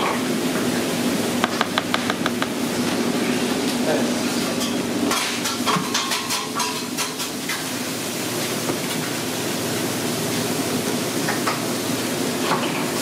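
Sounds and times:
low kitchen hum: 0.0s - 13.0s
spoon stirring thick wet mixture: 1.4s - 3.6s.

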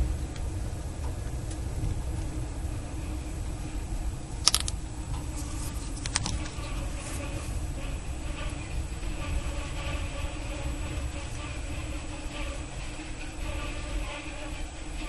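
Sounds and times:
train coach rumble: 0.0s - 15.0s
sharp clicks: 4.5s - 4.8s.

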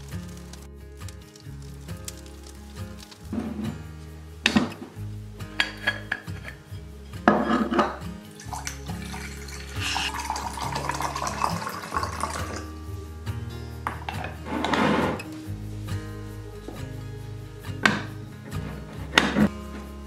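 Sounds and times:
water pouring into metal pot: 8.2s - 12.8s.

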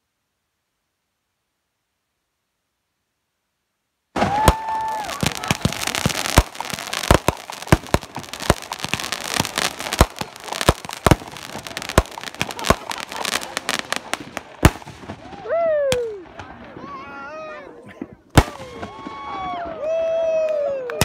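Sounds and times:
firework whistle: 4.2s - 16.0s
firework bangs: 4.2s - 16.9s, 18.3s - 20.0s
firework crackling: 4.2s - 16.9s, 18.3s - 20.3s.

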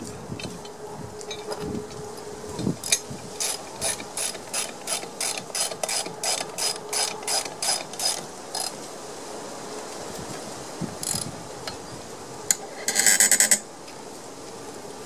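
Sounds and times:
socket ratchet wrench clicking: 2.8s - 8.7s, 11.0s - 11.3s.

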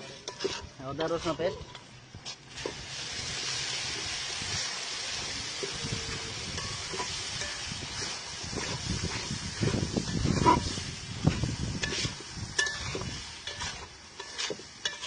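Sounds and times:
metal spatula scraping pot: 0.0s - 1.9s, 5.6s - 15.0s
onions sizzling in oil: 0.0s - 15.0s.

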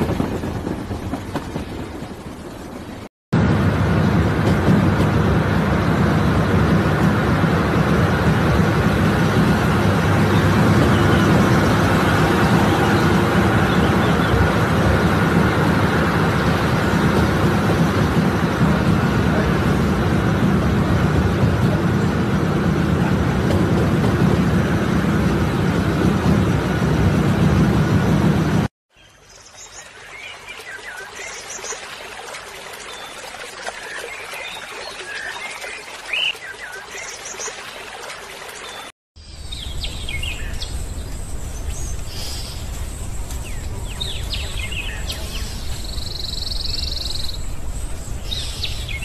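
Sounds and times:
train running rumble and hiss: 0.0s - 28.7s, 39.3s - 49.0s.

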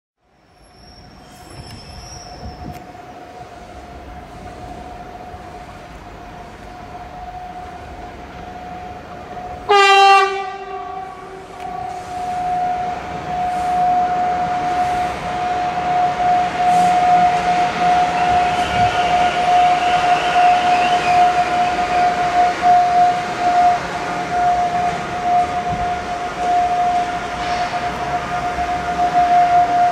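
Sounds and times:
train passing: 0.2s - 29.9s
train horn blast: 8.7s - 29.9s.

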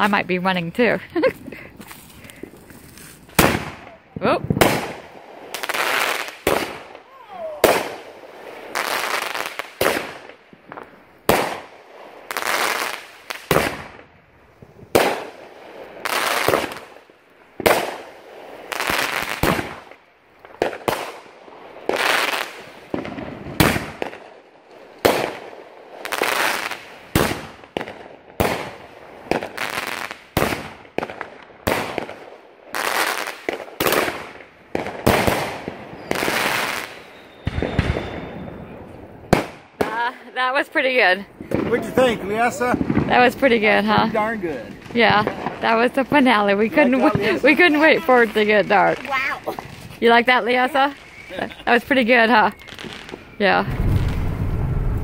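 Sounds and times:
fireworks bangs: 0.0s - 55.0s.

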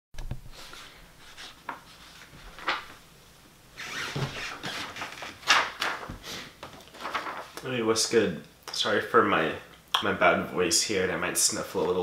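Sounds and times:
clothing and bedding rustling: 0.4s - 3.1s, 3.8s - 7.6s.

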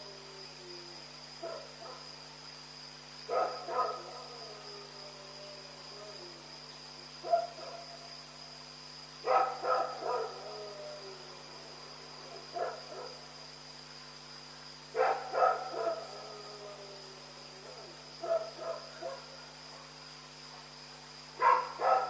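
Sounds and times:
dog barking: 1.4s - 2.1s, 3.3s - 4.4s, 7.2s - 7.8s, 9.2s - 10.4s, 12.5s - 13.2s, 15.0s - 16.2s, 18.2s - 19.9s, 21.4s - 22.0s.

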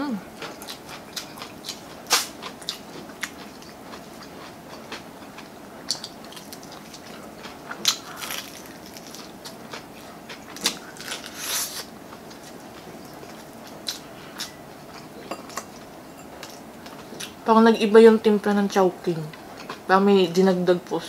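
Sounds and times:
crunching fried chicken: 0.4s - 14.6s
chewing: 0.4s - 17.4s, 19.3s - 19.9s.

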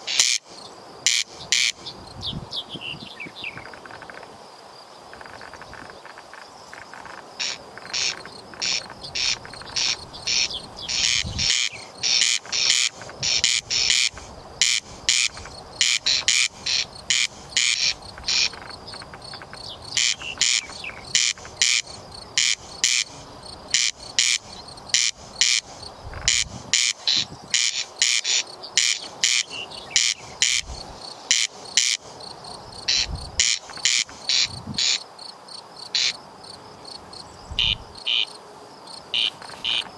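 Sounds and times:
corn crake rasping calls: 0.0s - 2.0s, 5.2s - 35.1s, 35.8s - 36.2s, 37.1s - 38.4s, 39.0s - 39.9s.

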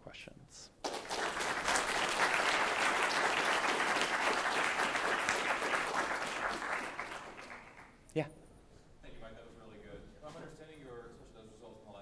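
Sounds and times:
audience applauding: 0.8s - 8.0s.

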